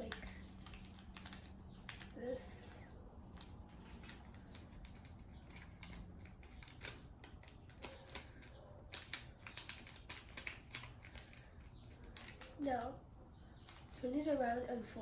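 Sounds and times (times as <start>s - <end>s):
paper crinkling as folded: 0.0s - 2.2s, 3.4s - 12.8s.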